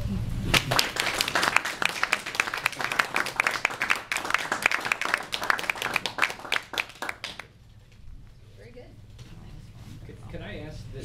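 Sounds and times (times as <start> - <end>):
audience applauding: 0.5 - 7.5.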